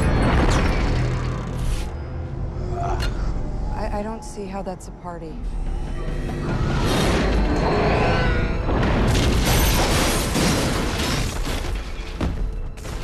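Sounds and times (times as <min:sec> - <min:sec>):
action film music: 0:00.0 - 0:13.0
booming crashing destruction effects: 0:06.6 - 0:13.0.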